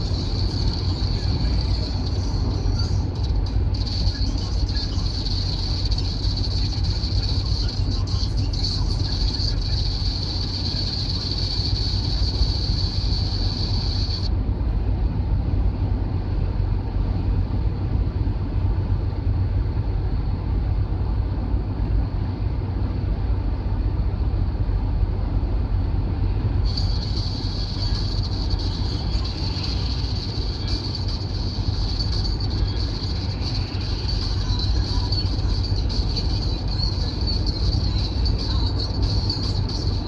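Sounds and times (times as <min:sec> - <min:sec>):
vehicle cabin road rumble: 0:00.0 - 0:40.0.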